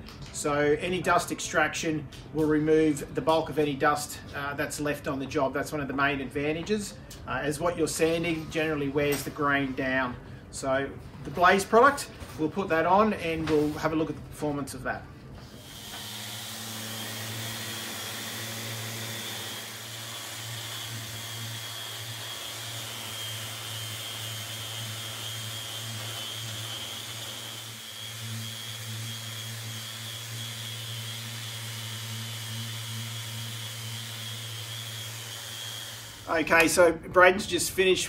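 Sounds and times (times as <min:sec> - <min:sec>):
orbital sander humming: 0:15.5 - 0:36.7.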